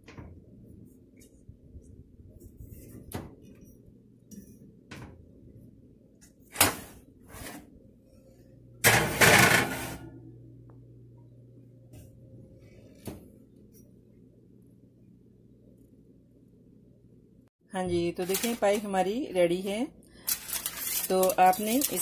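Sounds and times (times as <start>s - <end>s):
oven rack clattering rattle: 8.8s - 10.1s.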